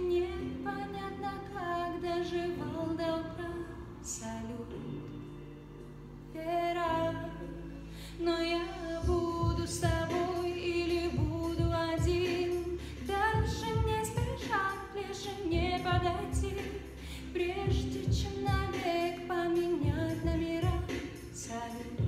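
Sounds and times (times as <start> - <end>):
woman singing pop ballad: 0.0 - 5.3, 6.3 - 22.0
backing track with steady beat: 7.3 - 22.0.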